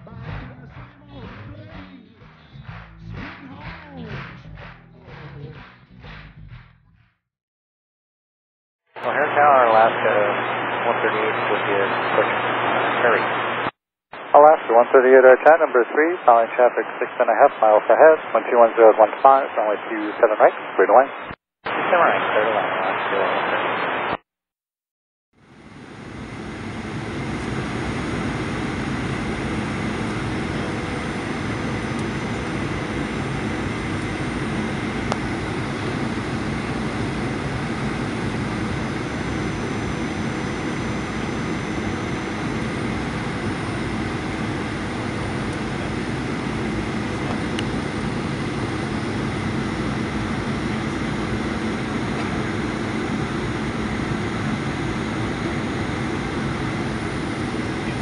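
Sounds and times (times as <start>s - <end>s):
aircraft cabin engine noise: 9.0s - 13.6s, 14.3s - 21.0s, 25.5s - 58.0s.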